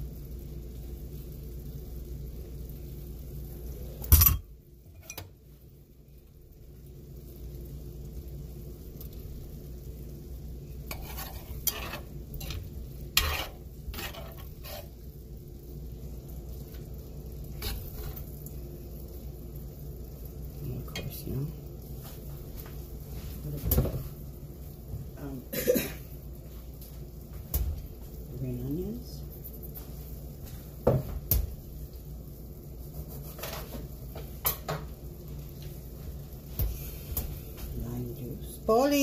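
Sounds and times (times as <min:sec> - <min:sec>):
utensils scraping and clinking dishes: 0:10.9 - 0:14.9.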